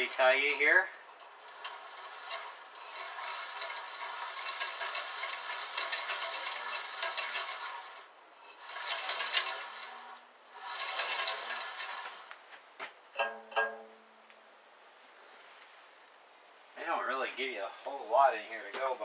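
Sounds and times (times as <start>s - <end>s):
bandsaw wheel whirring with ticking: 0.0s - 12.4s.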